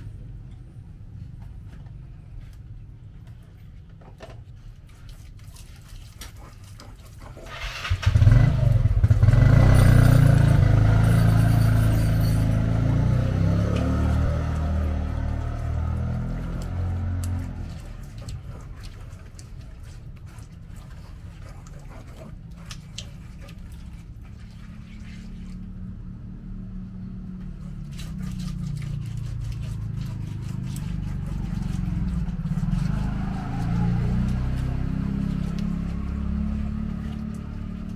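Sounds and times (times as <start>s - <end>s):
stone pestle grinding in mortar: 27.8s - 35.9s.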